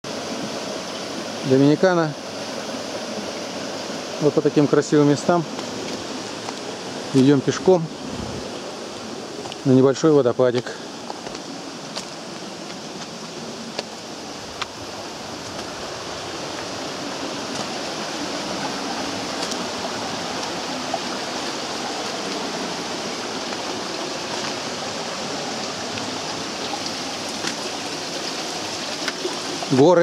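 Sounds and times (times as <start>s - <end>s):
stream running over stones: 0.1s - 30.0s.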